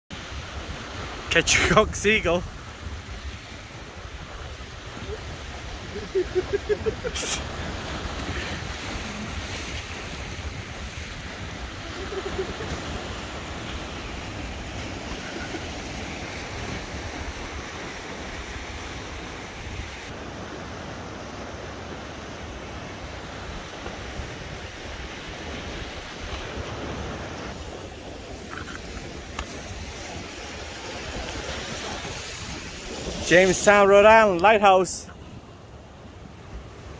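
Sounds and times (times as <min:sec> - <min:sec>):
surf against rocky shore: 0:00.1 - 0:36.9
wind buffeting microphone: 0:02.4 - 0:20.1.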